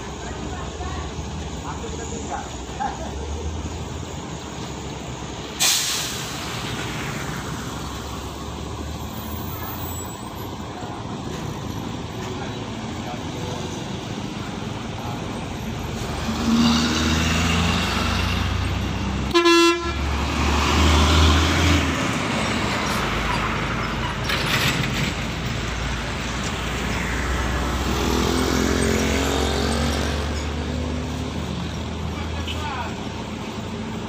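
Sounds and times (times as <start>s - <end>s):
vehicle horn toot: 19.3s - 20.1s.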